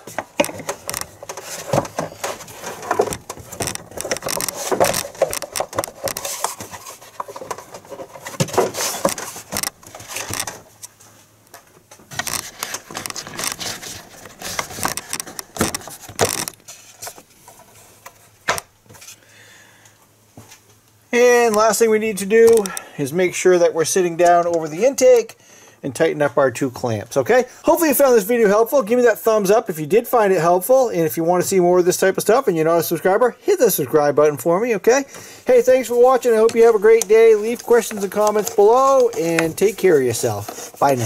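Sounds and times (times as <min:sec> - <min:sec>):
plastic cover rubbing and scraping: 0:00.0 - 0:11.0, 0:12.1 - 0:19.2, 0:35.2 - 0:41.0
plastic knocks and clicks: 0:00.1 - 0:10.6, 0:14.4 - 0:16.6.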